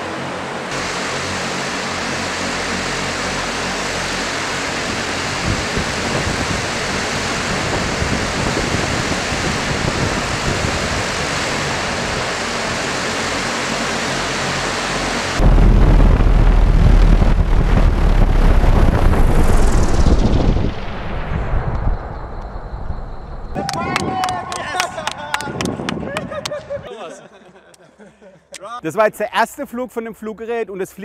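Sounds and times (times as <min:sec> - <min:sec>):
rotor wash rumble on microphone: 0:00.0 - 0:23.6
multicopter rotors whooshing: 0:00.0 - 0:26.8.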